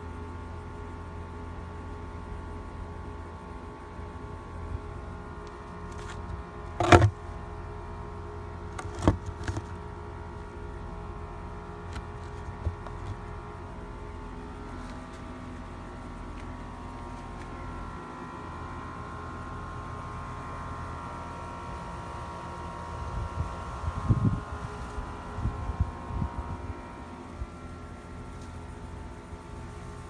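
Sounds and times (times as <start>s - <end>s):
steady mechanical hum: 0.0s - 30.0s
plastic bucket lid knocking: 6.8s - 7.1s, 8.8s - 9.7s.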